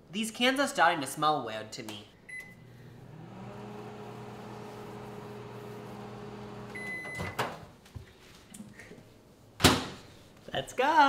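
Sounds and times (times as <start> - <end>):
microwave beep: 2.3 - 2.7, 6.5 - 7.6
microwave oven humming: 2.3 - 7.6.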